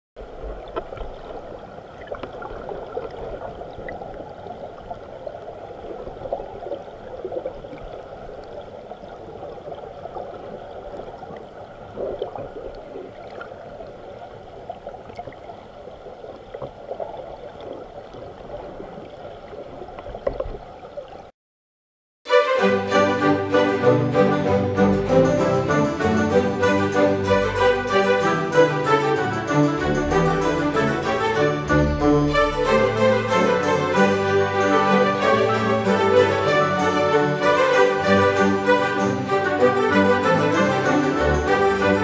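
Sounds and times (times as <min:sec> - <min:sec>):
muffled underwater stream gurgling: 0:00.2 - 0:21.3.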